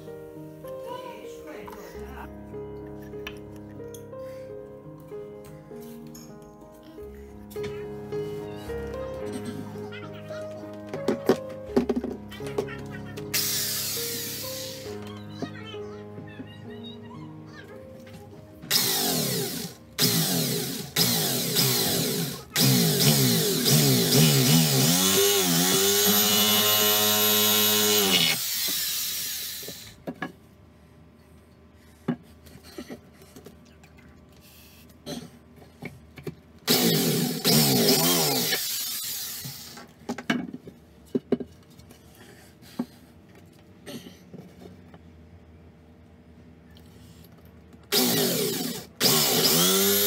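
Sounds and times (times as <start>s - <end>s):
electric drill whining: 13.3s - 15.0s, 18.7s - 30.0s, 36.7s - 39.9s, 47.9s - 50.0s.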